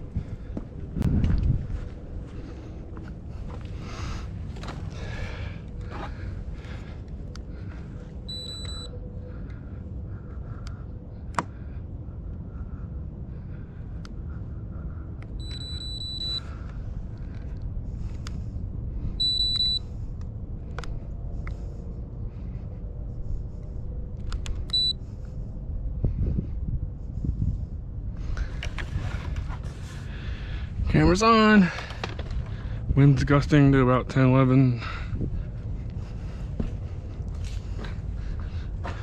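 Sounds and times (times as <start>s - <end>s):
wind rumbling on microphone: 0.0s - 8.4s, 16.5s - 39.0s.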